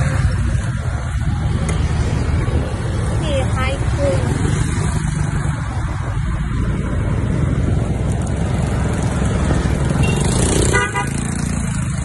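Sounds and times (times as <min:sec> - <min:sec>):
wind rushing over microphone: 0:00.0 - 0:10.7
motorbike road noise: 0:00.0 - 0:12.0
horn toot: 0:10.0 - 0:11.5.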